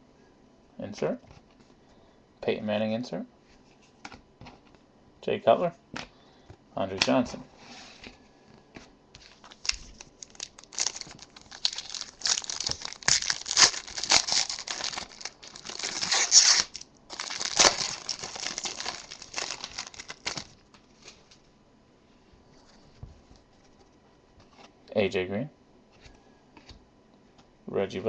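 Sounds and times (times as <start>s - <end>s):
foil wrapper tearing and crinkling: 9.3s - 20.6s.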